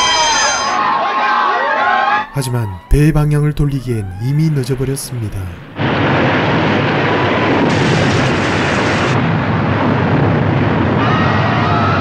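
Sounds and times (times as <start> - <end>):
deep rumble: 4.5 - 12.0.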